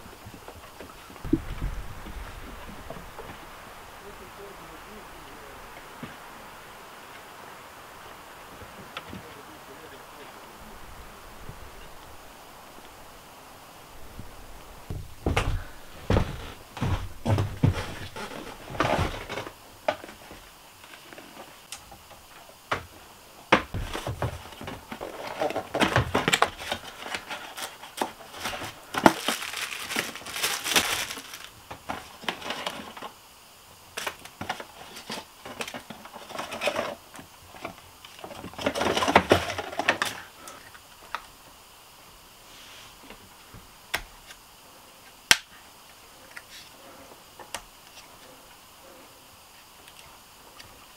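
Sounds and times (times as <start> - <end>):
plastic packaging crinkling: 25.0 - 33.0.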